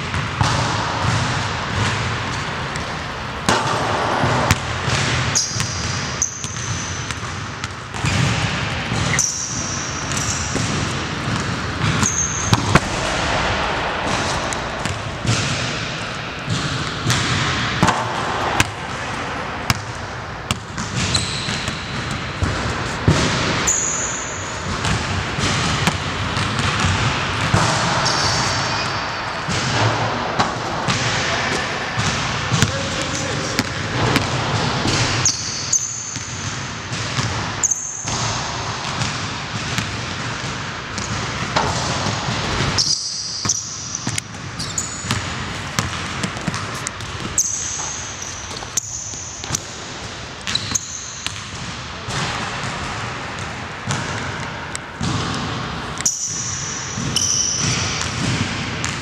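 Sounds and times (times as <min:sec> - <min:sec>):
basketball bouncing on hardwood: 0:00.1 - 0:18.9, 0:24.7 - 0:32.8, 0:45.0 - 0:49.8
sneaker squeaks: 0:00.1 - 0:34.3, 0:34.9 - 0:36.6, 0:37.2 - 0:38.2, 0:40.9 - 0:59.0.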